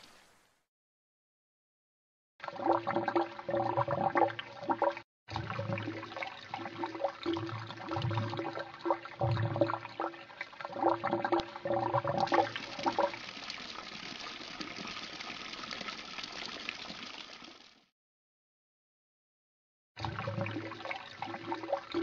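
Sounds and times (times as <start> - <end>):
water pouring into a tank: 2.4 - 17.9, 20.0 - 22.0.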